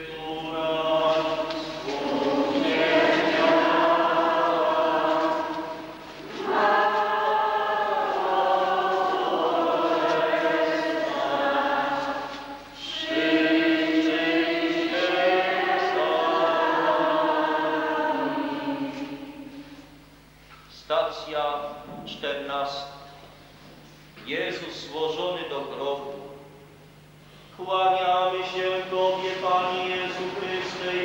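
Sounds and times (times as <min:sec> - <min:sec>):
group singing a hymn: 0:00.0 - 0:19.9, 0:27.6 - 0:31.0.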